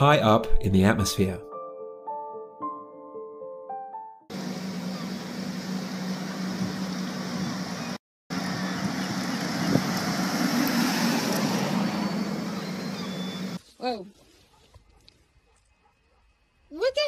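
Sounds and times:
vehicle engine humming: 0:04.3 - 0:13.6
wind rushing on microphone: 0:06.5 - 0:13.6.

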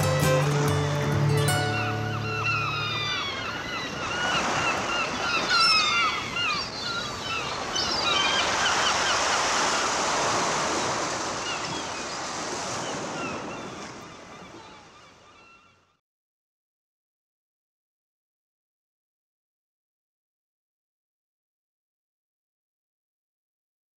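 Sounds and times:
surf rushing: 0:00.0 - 0:14.0
gulls calling: 0:00.0 - 0:16.0.

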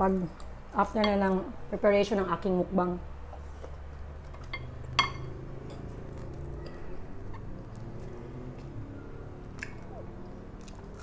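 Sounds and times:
low steady hum: 0:00.0 - 0:11.0
spoon clinking on ceramic plate: 0:04.5 - 0:05.3.

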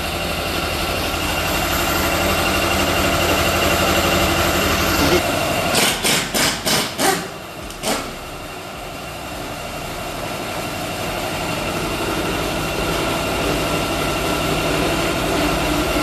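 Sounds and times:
sharp metallic knock: 0:05.8 - 0:08.1.

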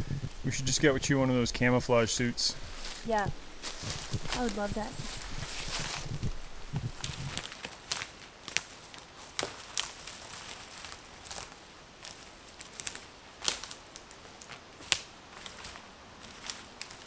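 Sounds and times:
footsteps on dry leaves and twigs: 0:02.6 - 0:17.0.

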